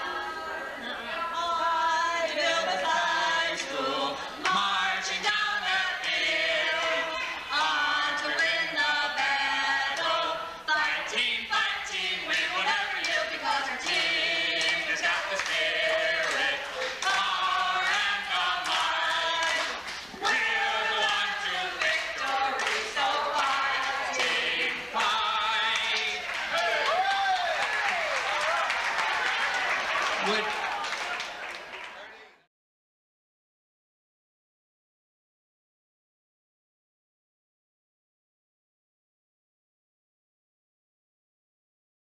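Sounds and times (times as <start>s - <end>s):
group singing together: 0.0s - 28.1s.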